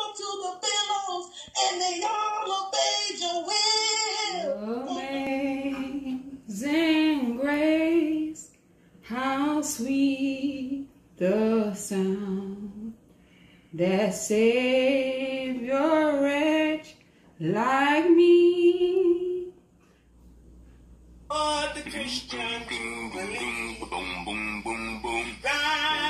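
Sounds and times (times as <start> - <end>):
woman singing unaccompanied: 0.0 - 13.0, 13.8 - 19.6, 25.4 - 26.0.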